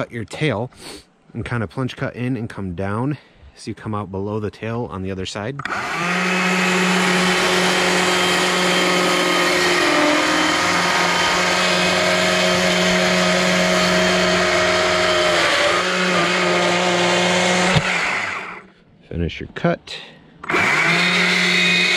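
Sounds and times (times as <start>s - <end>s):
chainsaw cutting log: 5.6s - 18.7s, 20.4s - 21.9s.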